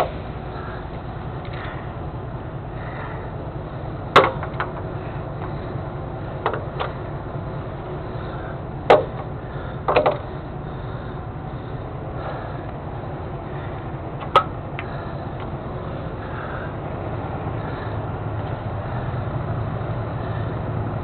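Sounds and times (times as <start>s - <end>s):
diesel engine idling: 0.0s - 21.0s
sharp knocks: 4.2s - 4.7s, 8.9s - 9.3s.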